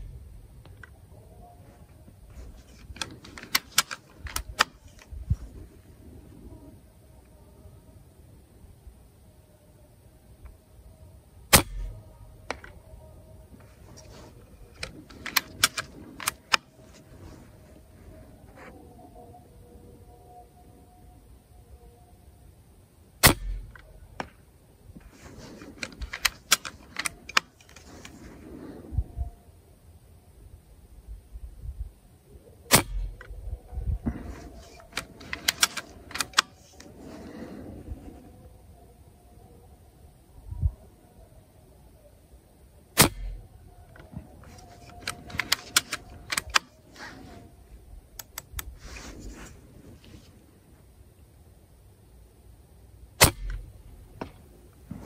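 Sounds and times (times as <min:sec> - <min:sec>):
air rifle shot crack: 0:11.5 - 0:12.7, 0:23.2 - 0:23.8, 0:32.7 - 0:33.2, 0:43.0 - 0:43.5, 0:53.2 - 0:55.0.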